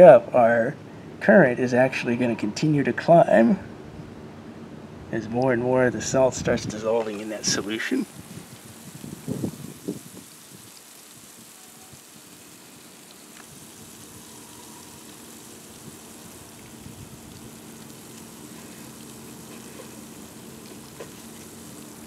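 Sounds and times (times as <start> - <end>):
brine fizzing and bubbling: 6.9 - 22.0.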